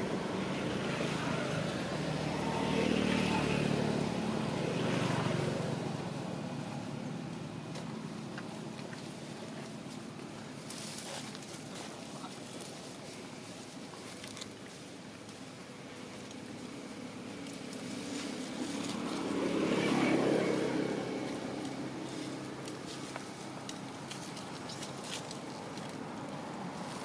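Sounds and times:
vehicle engine passing by: 0.0s - 10.0s, 15.8s - 27.0s.

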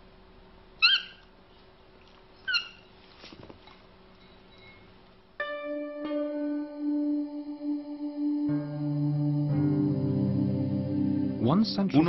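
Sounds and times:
high-pitched bonobo calls: 0.8s - 1.2s, 2.4s - 2.9s.

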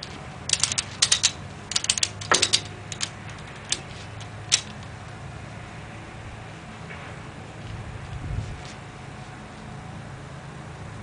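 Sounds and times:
heavy metal clunk: 0.0s - 3.9s
metal hardware clicking: 0.0s - 4.9s.

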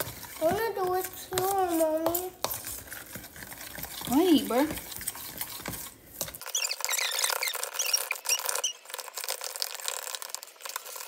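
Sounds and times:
fork scraping plastic container: 0.0s - 11.0s
short high squeaks: 6.4s - 9.0s.

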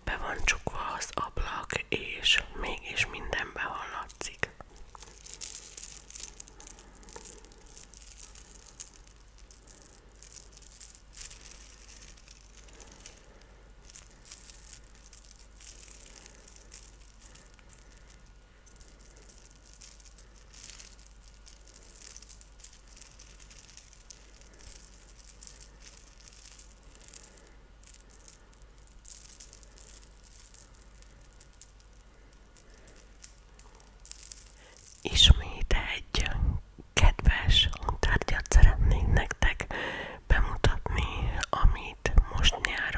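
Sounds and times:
necklace chain clinking: 2.3s - 35.8s.

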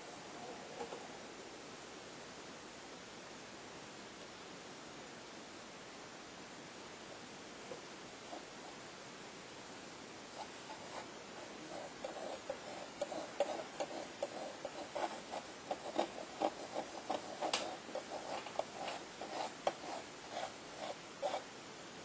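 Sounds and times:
palette knife scraping paint: 10.4s - 21.4s.

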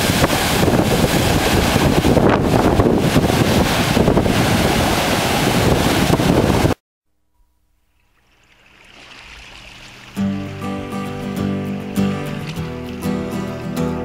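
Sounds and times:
heavy surf breaking on rocks: 0.0s - 6.8s
wind buffeting microphone: 0.0s - 6.8s.

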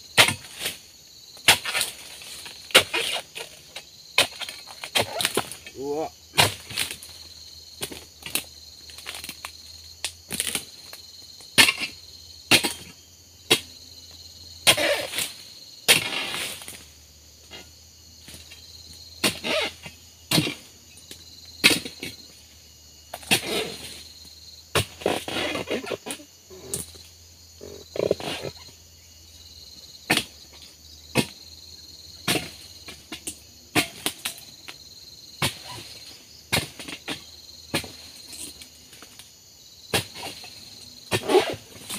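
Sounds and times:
insects trilling: 0.0s - 41.9s
tool chopping into fronds: 0.2s - 0.8s, 19.2s - 19.7s, 32.2s - 34.4s, 36.5s - 38.4s.

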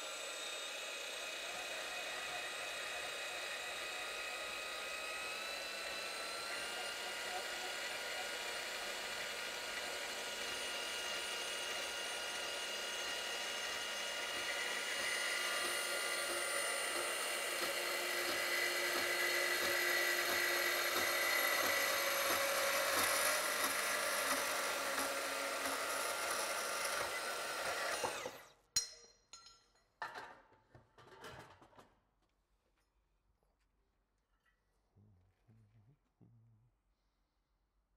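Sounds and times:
band saw cutting steel: 0.0s - 28.6s.

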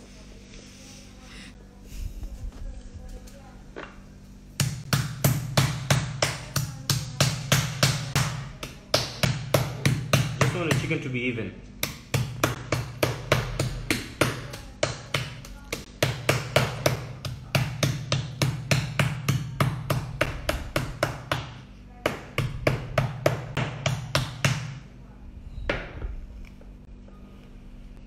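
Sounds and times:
meat mallet pounding chicken: 4.6s - 11.0s, 11.8s - 24.8s.

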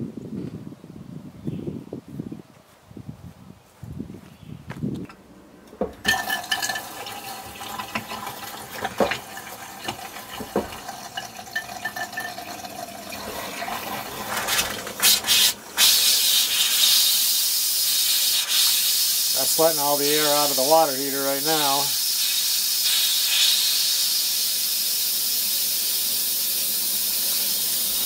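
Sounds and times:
faucet water sputtering: 5.8s - 28.0s.

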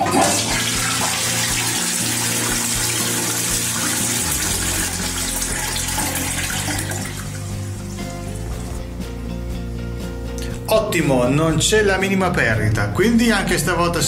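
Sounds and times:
toilet flushing: 0.0s - 8.8s
water rushing through bowl: 0.0s - 8.8s.

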